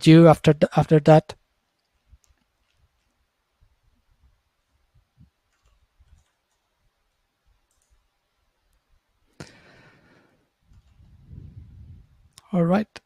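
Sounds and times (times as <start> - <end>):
soft clicks: 1.7 - 3.2, 5.4 - 8.1.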